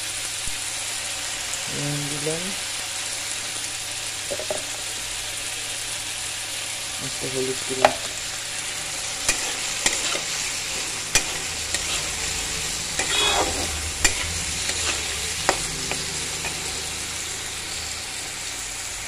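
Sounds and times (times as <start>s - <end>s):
food sizzling in hot oil: 0.0s - 19.0s
metal spatula scraping a pan: 7.8s - 18.3s.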